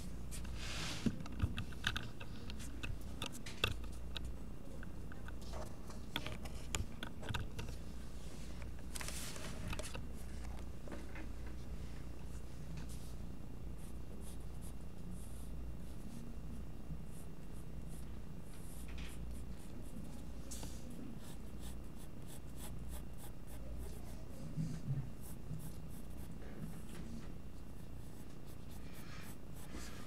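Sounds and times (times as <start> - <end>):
low steady hum: 0.0 - 30.0
pencil scratching on paper: 21.2 - 24.4, 25.2 - 26.9, 27.7 - 30.0.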